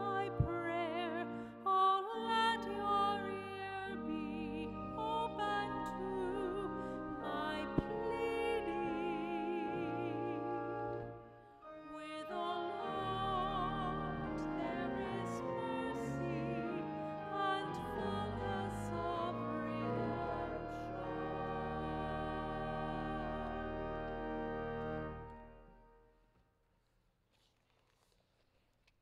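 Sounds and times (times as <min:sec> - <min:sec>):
woman singing with vibrato: 0:00.0 - 0:10.4, 0:11.9 - 0:19.8
sustained instrumental accompaniment: 0:00.0 - 0:26.1.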